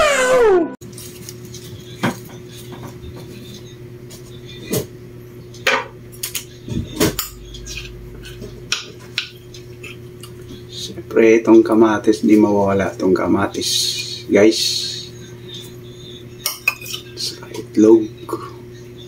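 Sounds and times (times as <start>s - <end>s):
faint steady hum: 1.0s - 19.0s
utensils clinking against dishes: 5.6s - 10.9s, 14.9s - 17.7s.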